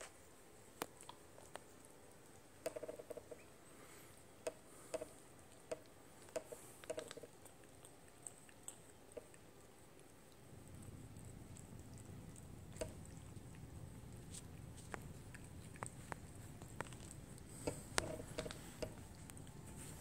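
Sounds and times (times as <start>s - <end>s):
cat licking plastic bottle: 4.4s - 20.0s.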